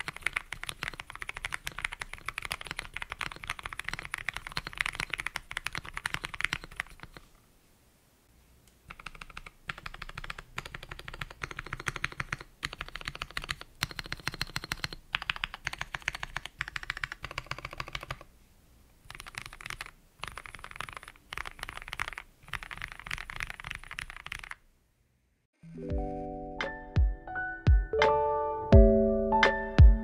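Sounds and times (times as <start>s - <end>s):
mechanical keyboard typing: 0.0s - 7.3s, 8.9s - 18.3s, 19.1s - 24.6s.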